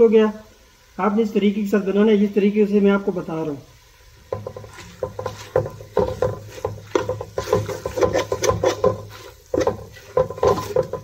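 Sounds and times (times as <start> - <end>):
metal spoon scraping a pot: 4.3 - 11.0.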